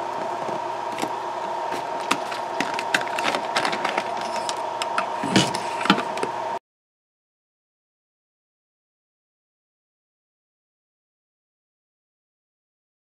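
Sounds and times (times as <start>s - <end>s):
steady thin hum: 0.0s - 6.6s.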